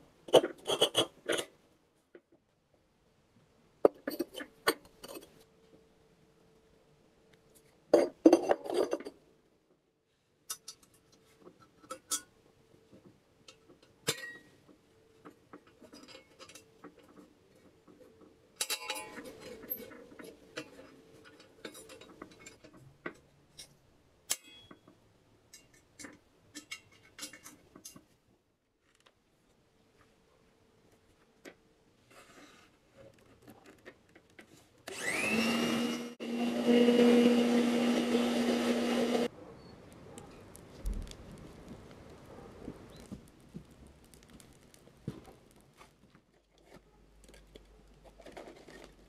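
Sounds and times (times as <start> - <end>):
small metal clinks and scrapes: 0.3 - 1.6, 3.9 - 5.5, 7.5 - 9.2, 10.5 - 12.4, 13.0 - 24.9, 25.5 - 28.1, 44.1 - 49.0.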